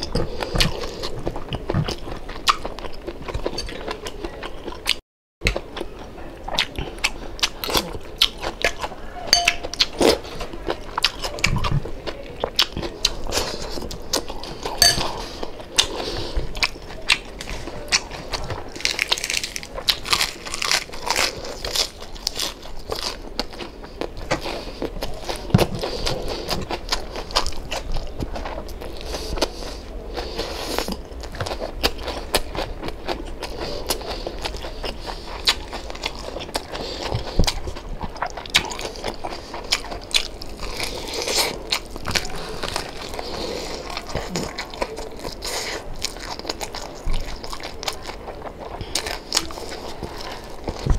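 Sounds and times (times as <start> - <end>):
person chewing crispy pork skin: 0.0 - 50.9.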